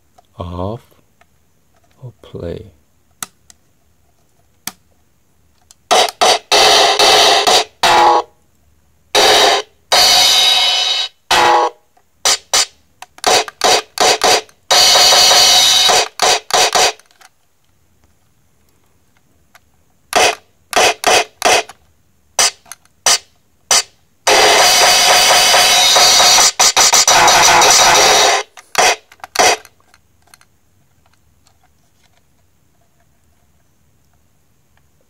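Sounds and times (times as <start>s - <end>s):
toy electronic drum hits: 5.9s - 8.3s, 9.2s - 17.0s, 20.2s - 21.7s, 22.4s - 29.7s.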